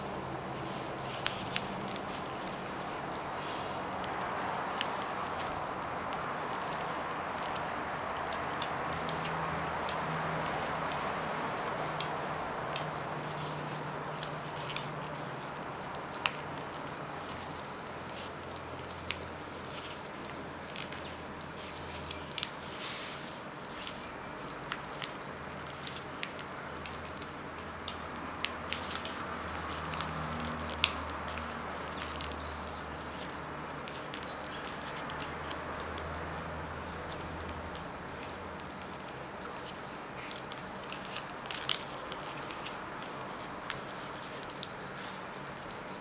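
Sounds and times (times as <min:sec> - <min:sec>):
paper rustling and creasing: 0:00.0 - 0:46.0
steady hiss and low hum: 0:00.0 - 0:46.0.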